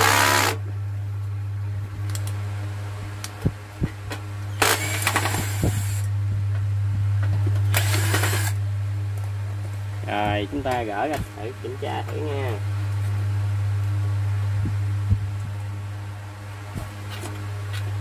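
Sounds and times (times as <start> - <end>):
cordless drill running: 0.0 - 0.6, 4.6 - 6.1, 7.7 - 8.6
steady low hum: 0.0 - 18.0.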